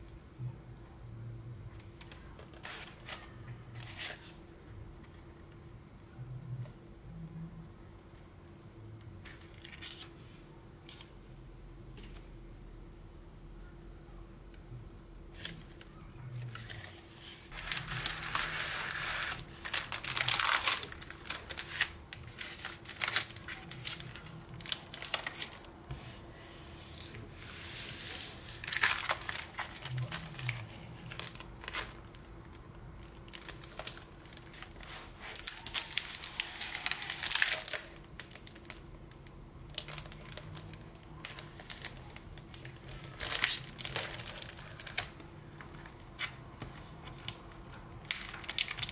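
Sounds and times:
cellophane crinkling: 0:17.5 - 0:25.7, 0:28.3 - 0:48.9.

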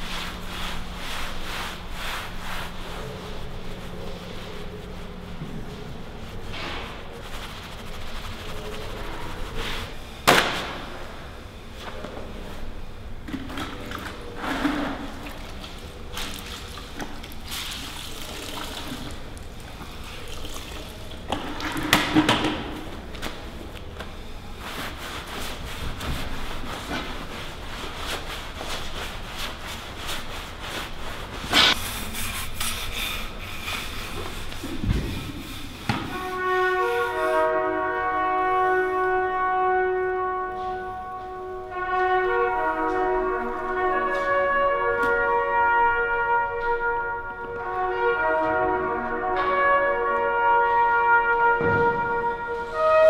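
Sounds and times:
wet cloth scrubbing concrete: 0:00.0 - 0:10.0
layered sustained trumpet notes: 0:36.0 - 0:53.0.

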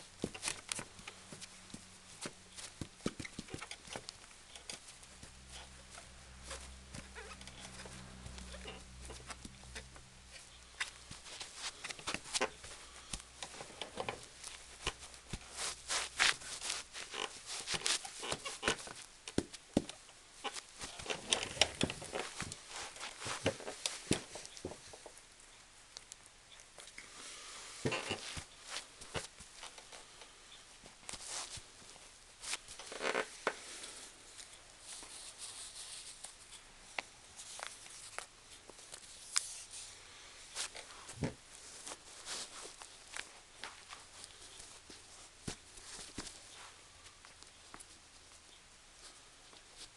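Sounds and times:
leather shoes rubbing and scuffing: 0:00.2 - 0:19.9
leather shoes scuffing: 0:10.4 - 0:19.9.

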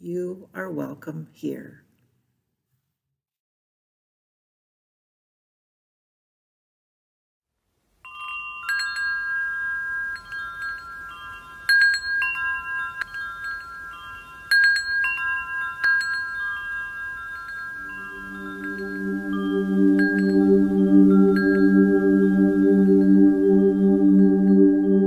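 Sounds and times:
metal tube wind chime ringing: 0:08.0 - 0:23.4
low sustained tone: 0:08.1 - 0:25.0.

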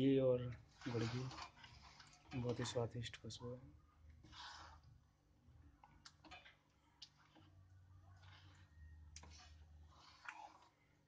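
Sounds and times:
spatula scraping a steel pan: 0:00.4 - 0:03.0, 0:04.2 - 0:05.0, 0:07.1 - 0:11.0.

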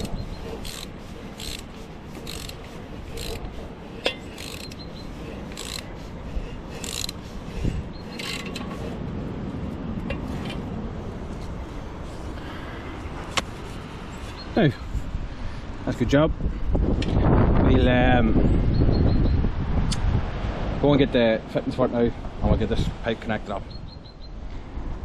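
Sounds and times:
socket ratchet clicking: 0:00.0 - 0:03.4, 0:04.0 - 0:04.9, 0:05.5 - 0:05.9, 0:06.8 - 0:07.2, 0:08.1 - 0:08.7.

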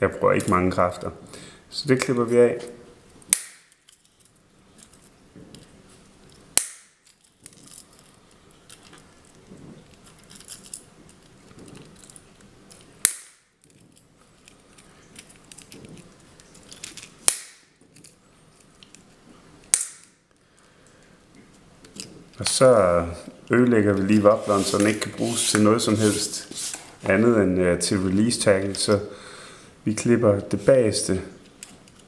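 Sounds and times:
pliers snipping wire: 0:03.3 - 0:03.9, 0:06.6 - 0:07.0, 0:12.7 - 0:13.5, 0:17.2 - 0:17.7, 0:19.7 - 0:20.1
handling of plastic lure: 0:03.7 - 0:13.0, 0:13.6 - 0:17.2.

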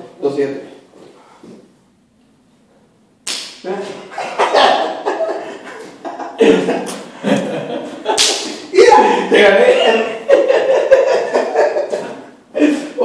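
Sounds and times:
sharp slap: 0:03.2 - 0:03.7, 0:08.1 - 0:08.7
men calling out: 0:08.7 - 0:10.1.

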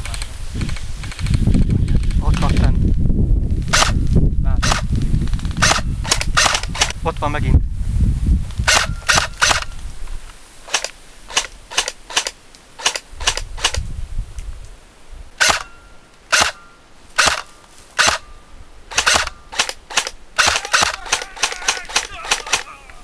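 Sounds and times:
airsoft gun shots: 0:03.7 - 0:04.0, 0:04.6 - 0:04.9, 0:05.6 - 0:07.0, 0:08.7 - 0:09.7, 0:15.4 - 0:18.3, 0:18.9 - 0:23.0.

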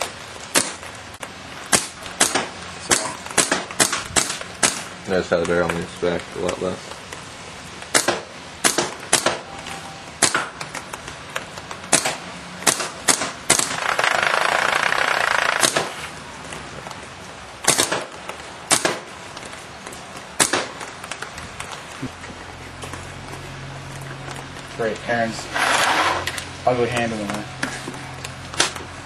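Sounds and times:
steady hiss: 0:00.0 - 0:29.0
paintball marker shots: 0:01.7 - 0:04.9, 0:07.9 - 0:09.5, 0:11.9 - 0:16.0, 0:17.6 - 0:19.1, 0:20.4 - 0:20.8.

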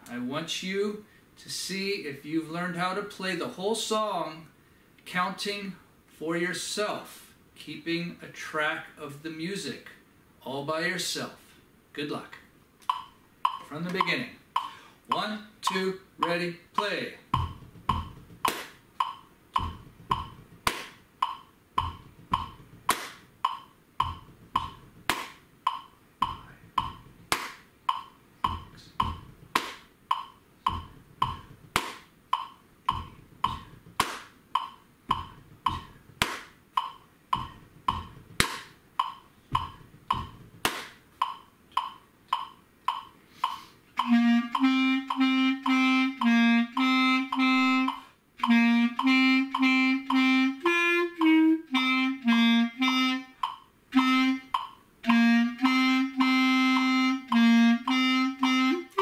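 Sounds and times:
metronome clicking: 0:12.8 - 0:59.0
clarinet short low notes: 0:55.1 - 0:59.0.

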